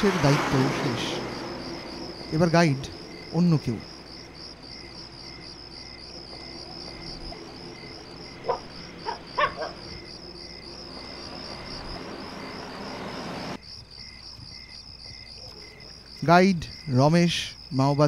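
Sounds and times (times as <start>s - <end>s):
crickets chirping: 0.0s - 18.0s
dog barking: 8.4s - 10.0s.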